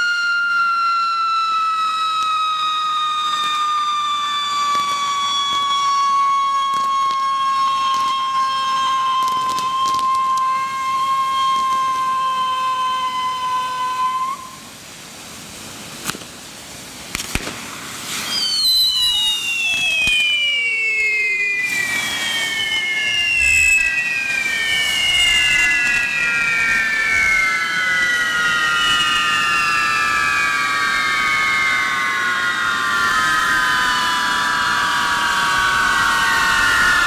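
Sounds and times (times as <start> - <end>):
whistling fireworks: 0.0 - 37.0
hiss of burning sparks: 1.9 - 37.0
sharp cracks: 2.1 - 12.0, 16.0 - 16.4, 17.1 - 30.8.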